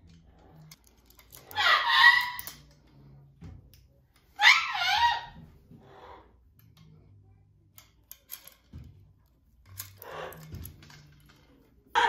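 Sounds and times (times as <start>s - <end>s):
metal chains clinking: 0.0s - 1.6s.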